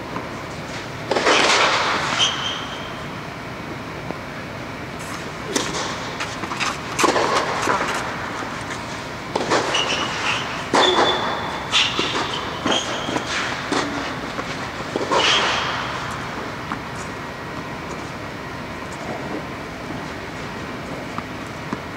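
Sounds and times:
tennis ball bouncing: 10.7s - 18.0s.

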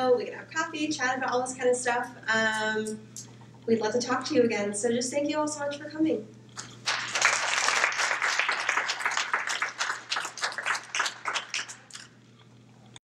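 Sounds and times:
audience applauding: 6.6s - 12.1s.

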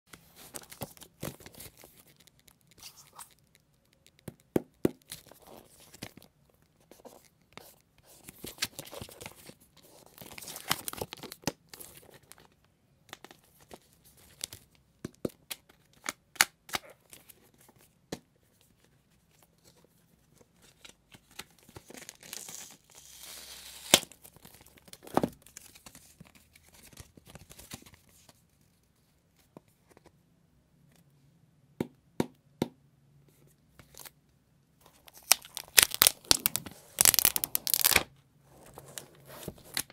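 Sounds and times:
plastic wrap tearing and crinkling: 35.1s - 38.1s.

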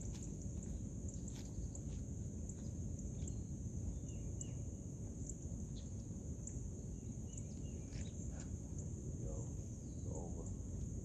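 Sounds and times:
high insect trill: 0.0s - 11.0s
low steady rumble: 0.0s - 11.0s.

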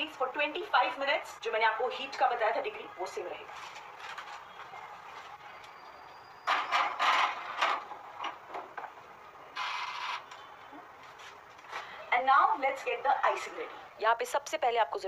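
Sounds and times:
metal clatter and scraping: 6.5s - 8.4s.

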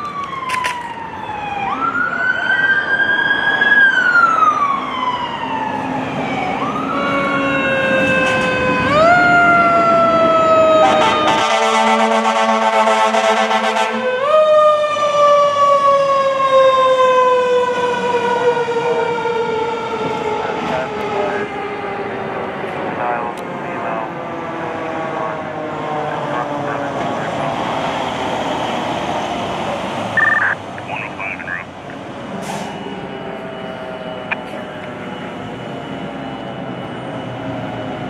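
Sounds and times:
fire engine sirens wailing: 0.0s - 38.0s
air horn: 10.8s - 14.0s.

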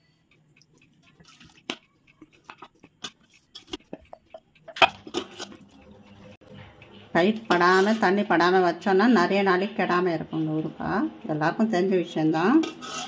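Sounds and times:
spatula clicking on bowl and jar: 0.6s - 6.0s.

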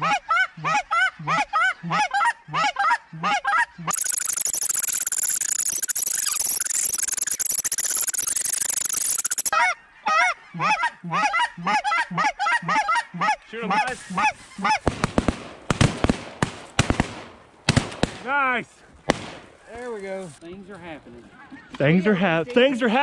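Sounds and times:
geese honking: 0.0s - 4.0s, 9.5s - 14.9s.

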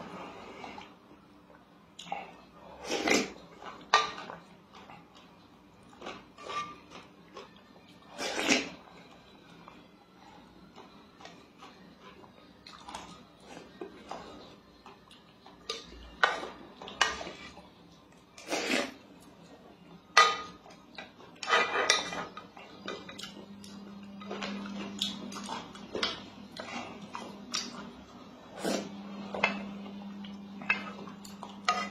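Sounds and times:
spoon scraping metal pot: 6.4s - 6.8s, 21.4s - 22.4s, 31.6s - 31.9s.

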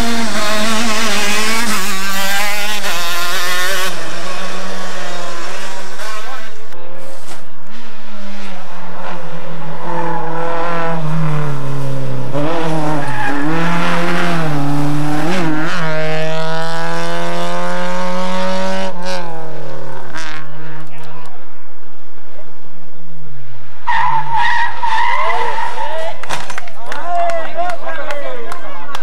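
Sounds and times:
rally car engine revving: 0.0s - 22.5s.

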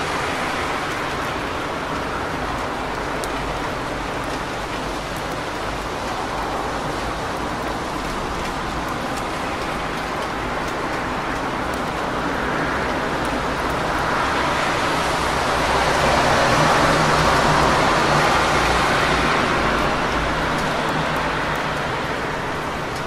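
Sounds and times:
rain on a wet street: 0.0s - 23.0s
car tyres hissing on wet road: 5.6s - 23.0s.

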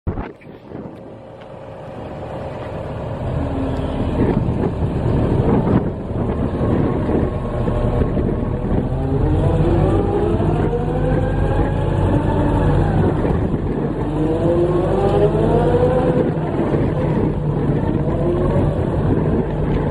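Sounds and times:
diesel engine running: 0.7s - 19.9s.

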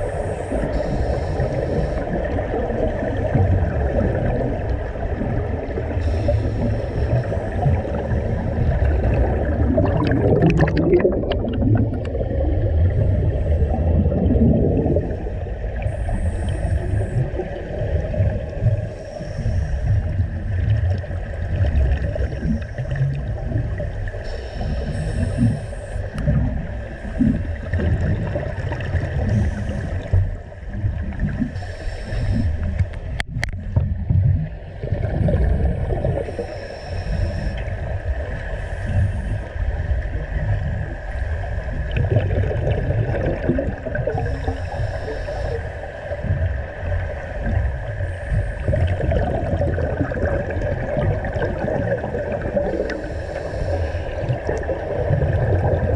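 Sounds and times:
regulator breaths: 0.0s - 2.3s, 15.9s - 17.4s, 18.8s - 20.4s, 24.2s - 26.2s, 31.5s - 33.0s, 35.3s - 37.8s, 44.1s - 46.6s, 52.8s - 54.4s
exhaled bubbles: 0.0s - 55.9s
underwater low rumble: 0.0s - 55.9s.

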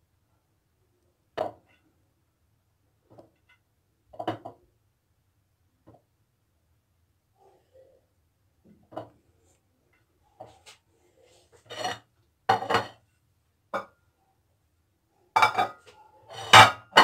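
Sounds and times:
porcelain plates clattering on tile: 11.7s - 13.0s, 15.4s - 17.0s.

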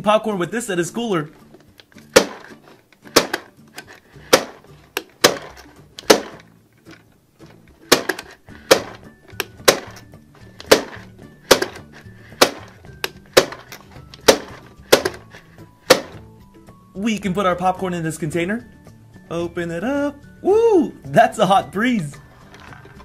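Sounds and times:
background music: 0.0s - 23.0s
plastic crank clacks: 1.6s - 10.0s.

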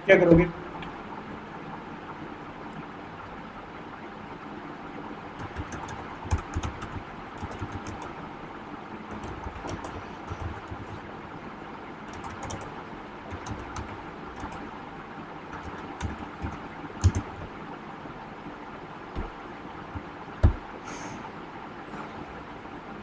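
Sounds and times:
low background hum: 0.0s - 23.0s
loud thumps: 19.2s - 19.4s.

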